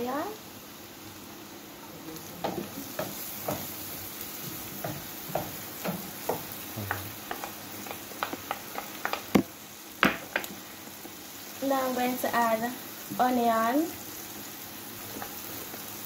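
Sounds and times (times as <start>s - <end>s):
butter sizzling in a frying pan: 0.0s - 16.0s
wooden spoon tapping bowl and pan: 2.4s - 3.8s, 4.4s - 10.6s.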